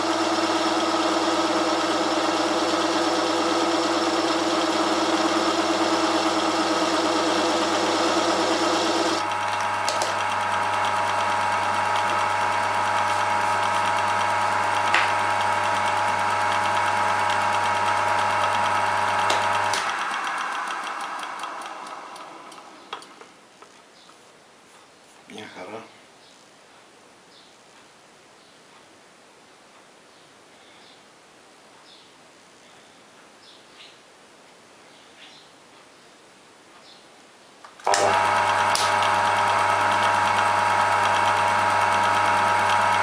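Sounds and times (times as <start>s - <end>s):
lathe tool cutting metal: 0.0s - 22.7s, 37.9s - 43.0s
lathe motor hum and whine: 0.0s - 23.1s, 37.8s - 43.0s.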